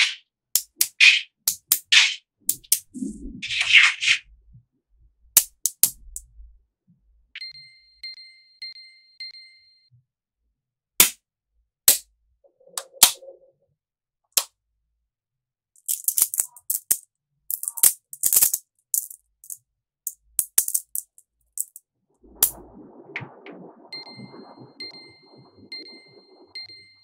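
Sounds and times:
magnetic metal balls clicking: 0:05.4 - 0:06.2, 0:15.8 - 0:21.8.

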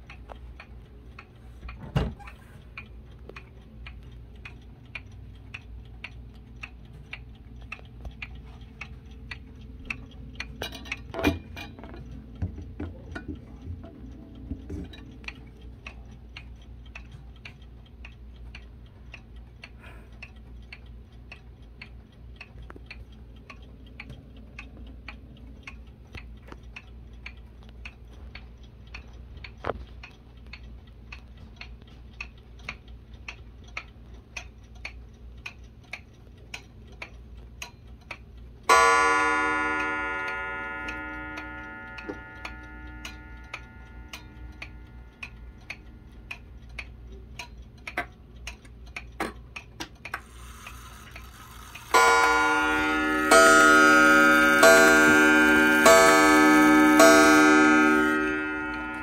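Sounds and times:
wall clock ticking: 0:00.0 - 0:59.0
clock striking gong: 0:38.7 - 0:45.1, 0:51.9 - 0:59.0.

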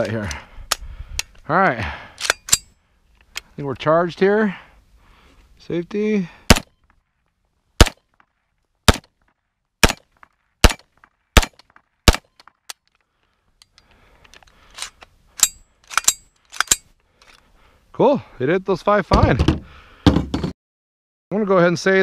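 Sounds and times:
rifle gunshots: 0:06.5 - 0:06.7, 0:07.8 - 0:08.0, 0:08.9 - 0:09.1, 0:09.8 - 0:12.4.

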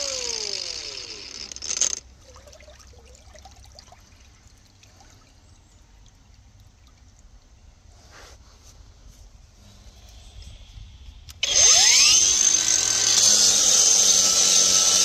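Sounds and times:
angle grinder grinding cement: 0:00.0 - 0:02.0, 0:11.4 - 0:15.0.

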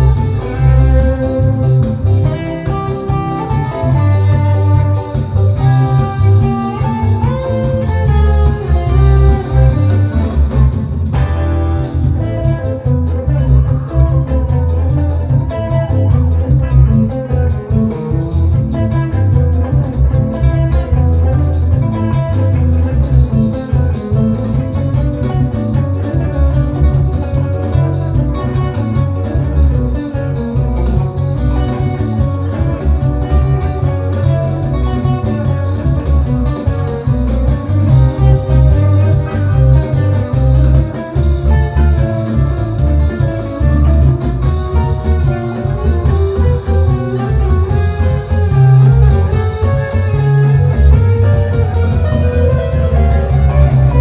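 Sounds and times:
electric guitar playing: 0:00.0 - 0:54.0.

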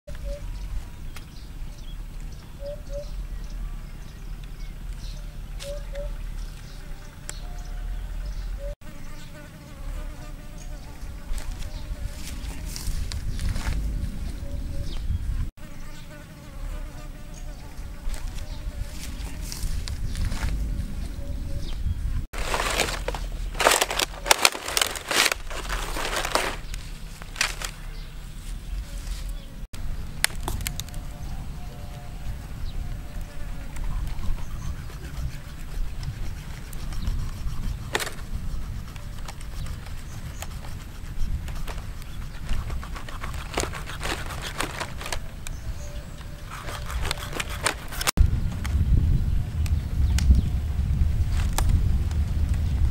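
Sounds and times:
steady low rumble: 0:10.9 - 0:15.5, 0:16.7 - 0:39.0, 0:48.2 - 0:52.9
dry palm fronds crackling: 0:22.3 - 0:31.3, 0:41.3 - 0:45.5, 0:49.6 - 0:52.9
knife cutting clicks and crunches: 0:41.4 - 0:45.5, 0:46.5 - 0:48.2.

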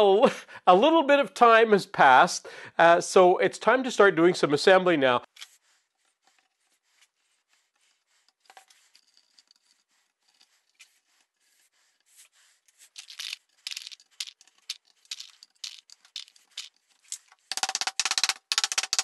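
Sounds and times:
wooden dowels clicking and rattling: 0:08.3 - 0:11.1, 0:12.7 - 0:19.0.

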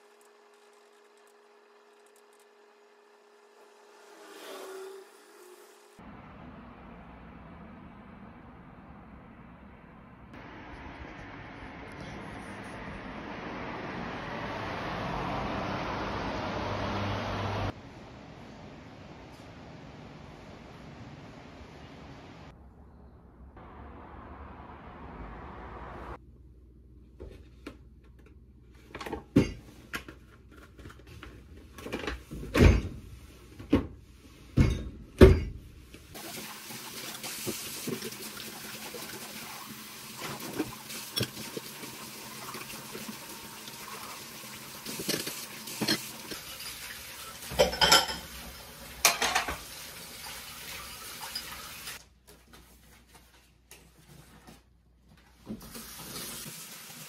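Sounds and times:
dishes knocking and clattering: 0:29.0 - 0:29.7, 0:32.0 - 0:33.0, 0:34.6 - 0:35.6, 0:47.4 - 0:49.7
crockery clinking: 0:47.5 - 0:48.4.

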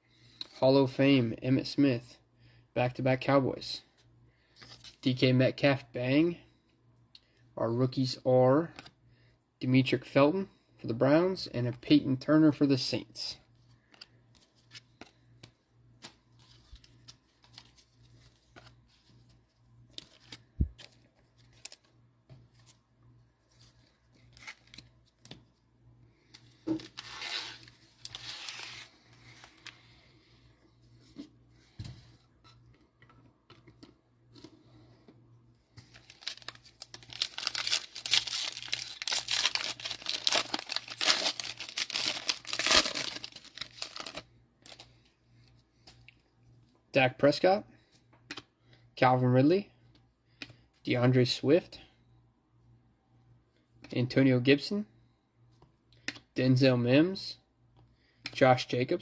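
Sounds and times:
foil packs crinkling and tearing: 0:35.9 - 0:44.8.

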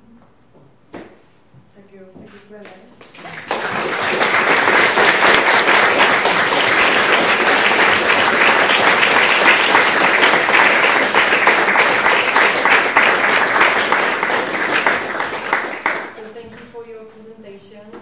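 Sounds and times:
audience applauding: 0:03.0 - 0:16.3.

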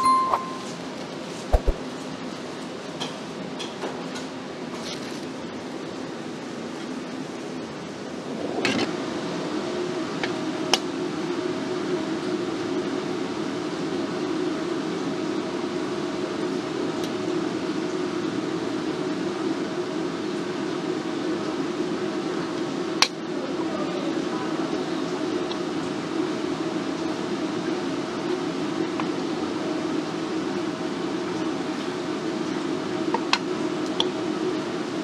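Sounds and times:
faint steady tone: 0:00.0 - 0:00.8
fan-like machine hum: 0:00.0 - 0:35.0.

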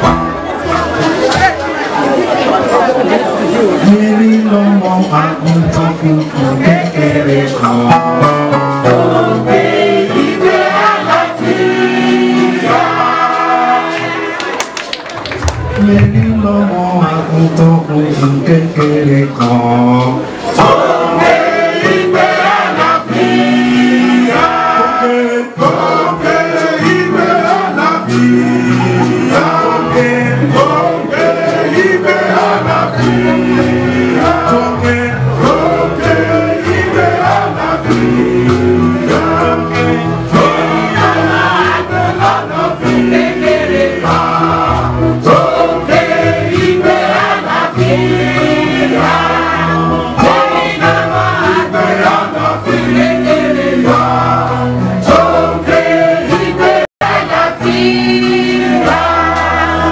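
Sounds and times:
choir singing gospel carol: 0:02.2 - 0:14.6, 0:18.0 - 0:59.9
hand-clapping: 0:13.9 - 0:16.0.

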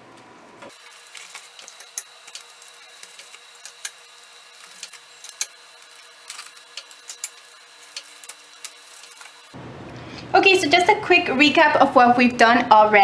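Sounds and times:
plastic wrap crinkling: 0:00.7 - 0:09.6.

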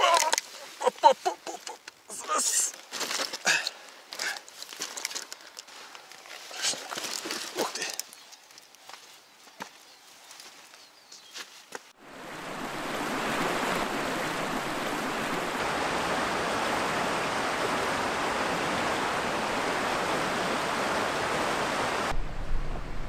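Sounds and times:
water rushing over stones: 0:12.0 - 0:23.0.

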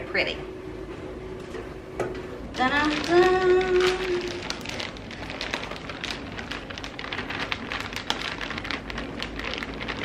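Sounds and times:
plastic bag crinkling: 0:02.6 - 0:10.0.

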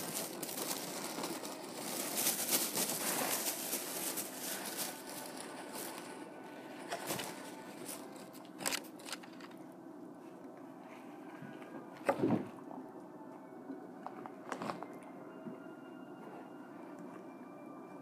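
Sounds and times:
food wrapper crinkling: 0:00.0 - 0:09.6.

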